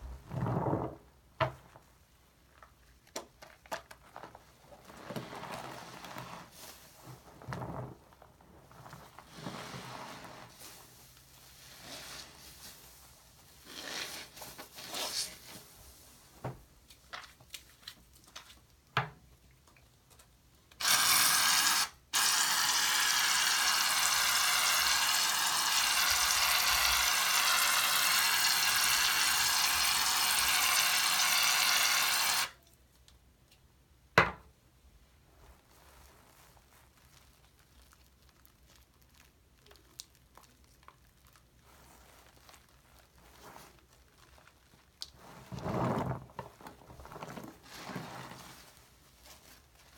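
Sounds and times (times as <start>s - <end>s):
sponge squishing in suds: 0.0s - 1.0s, 4.6s - 16.2s, 35.4s - 49.9s.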